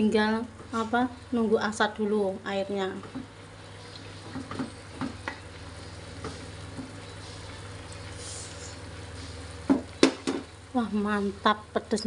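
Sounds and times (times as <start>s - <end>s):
low steady hum: 0.0s - 12.0s
sauce bubbling in a frying pan: 0.4s - 12.0s.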